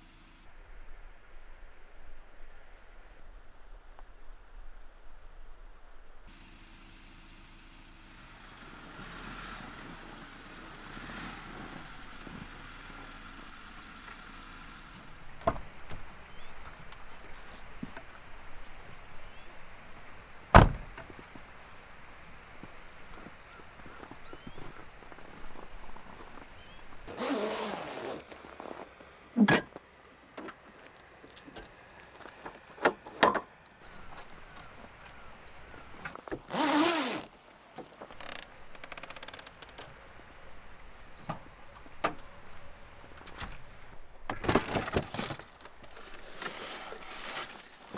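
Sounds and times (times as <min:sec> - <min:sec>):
vehicle hum: 0:00.0 - 0:47.9
footsteps in snow: 0:16.0 - 0:20.2, 0:21.1 - 0:29.2, 0:45.9 - 0:47.9
metal fastener clank: 0:32.8 - 0:33.5.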